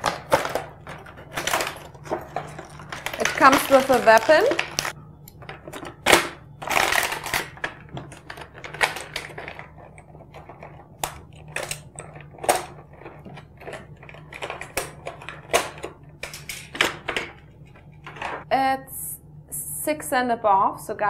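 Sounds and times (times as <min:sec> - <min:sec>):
plastic packaging crackling: 0:00.0 - 0:15.8.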